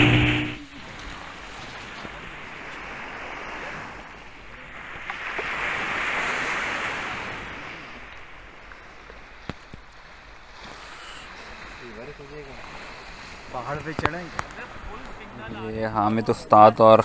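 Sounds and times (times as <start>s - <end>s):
waves washing onto beach: 0.0s - 17.0s.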